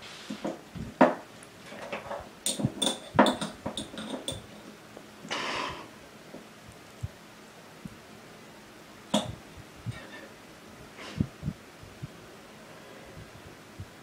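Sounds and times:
rustling hiss: 0.0s - 2.8s
glass items clinking: 2.0s - 4.5s.

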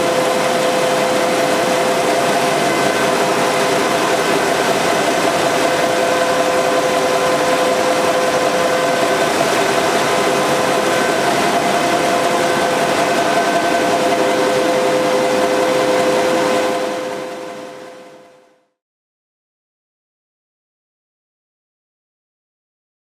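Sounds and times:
printing press mechanical drone: 0.0s - 18.4s.

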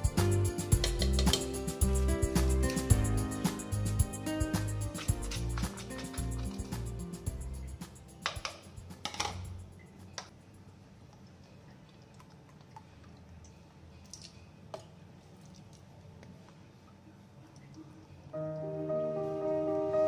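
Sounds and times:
utensil tapping metal bowl: 0.8s - 1.6s.

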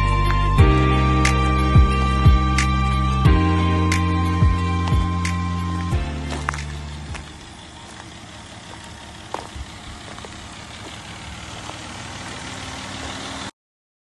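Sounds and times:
background music: 0.0s - 7.4s
slow vehicle road noise: 0.0s - 13.5s.

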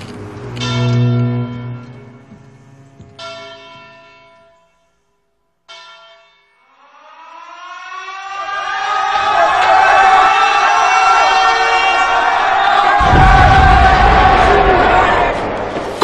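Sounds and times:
bell strokes ringing: 0.5s - 5.1s
siren winding up: 6.7s - 9.4s.

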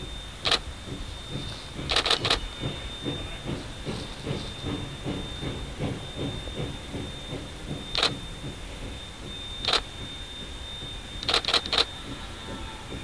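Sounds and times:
distant steam locomotive rumble: 0.0s - 13.0s
sharp clicks: 0.4s - 0.6s, 1.8s - 2.4s, 7.9s - 8.2s, 9.6s - 9.9s, 11.2s - 11.9s.

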